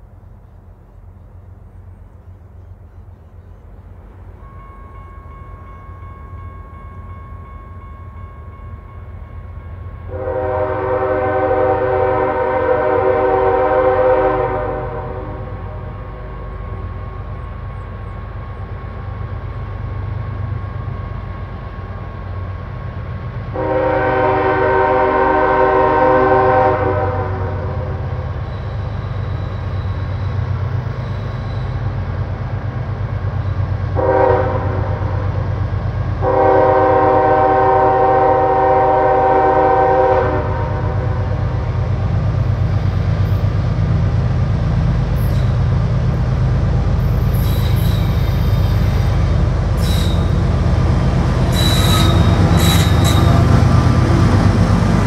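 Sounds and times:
diesel locomotives rumbling: 0:00.0 - 0:55.0
train horn chord blasts: 0:04.4 - 0:17.2, 0:23.5 - 0:28.9, 0:33.9 - 0:35.4, 0:36.2 - 0:41.6, 0:48.4 - 0:55.0.

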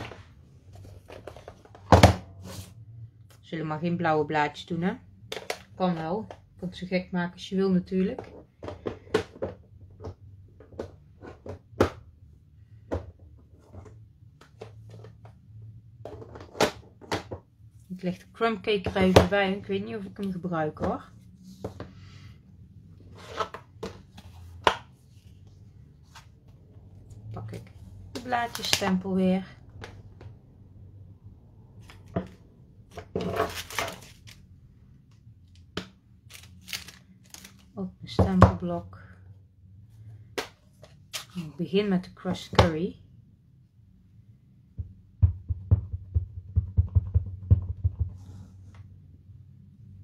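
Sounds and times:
plastic sleeve rustling: 0:36.3 - 0:37.7.

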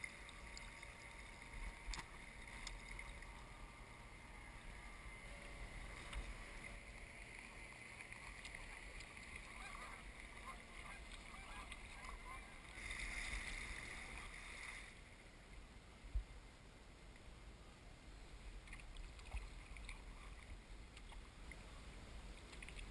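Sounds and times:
kayak paddle dipping and dripping: 0:00.0 - 0:14.4, 0:22.3 - 0:22.9
water swish: 0:00.0 - 0:16.6, 0:18.2 - 0:22.9.

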